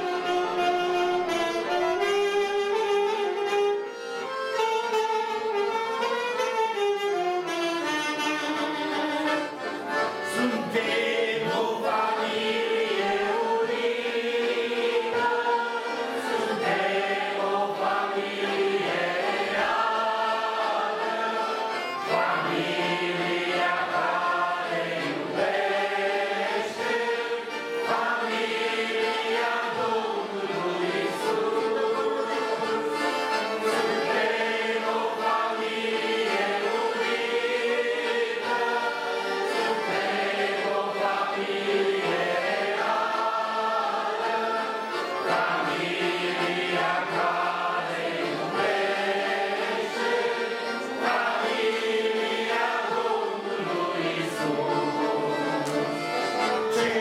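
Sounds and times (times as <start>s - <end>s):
saxophone line: 0.0s - 11.6s, 14.1s - 35.4s
piano accordions: 0.0s - 57.0s
men and women singing together: 10.3s - 56.1s, 56.7s - 57.0s.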